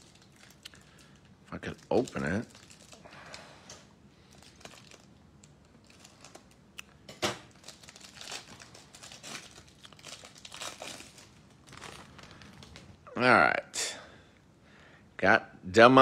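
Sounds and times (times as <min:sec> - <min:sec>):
plastic wrapper crinkling and tearing: 0:00.0 - 0:13.0.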